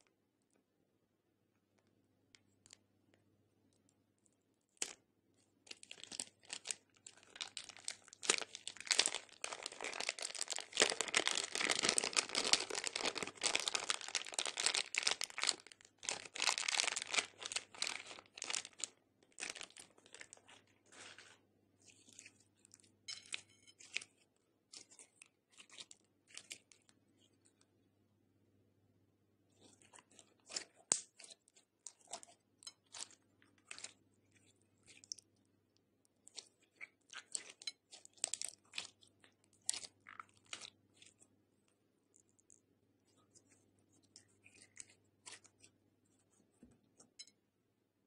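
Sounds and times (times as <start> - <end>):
sticky slime crackles: 3.7 - 27.6, 29.5 - 35.4, 36.0 - 46.4
plastic bag crinkling: 5.7 - 21.4.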